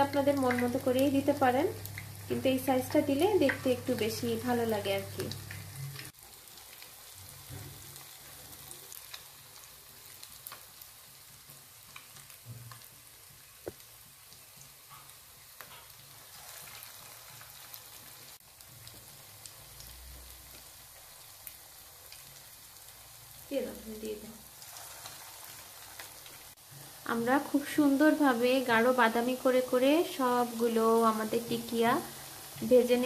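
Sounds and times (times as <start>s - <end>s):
oil popping and crackling: 0.0s - 23.3s, 23.9s - 26.7s
fish frying in hot oil: 0.0s - 33.0s.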